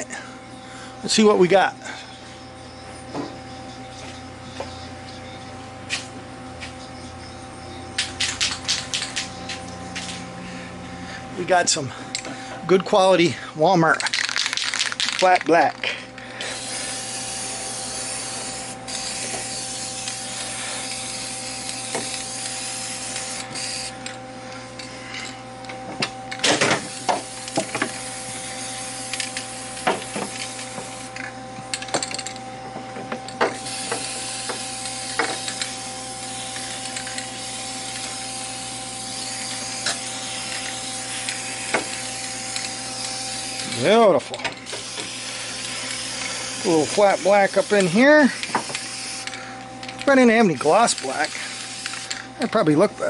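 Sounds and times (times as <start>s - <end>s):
steady low hum: 0.0s - 53.0s
spray paint can hissing: 14.1s - 15.5s, 16.5s - 24.0s, 26.8s - 31.2s, 33.5s - 43.9s, 44.7s - 49.4s, 50.8s - 52.3s.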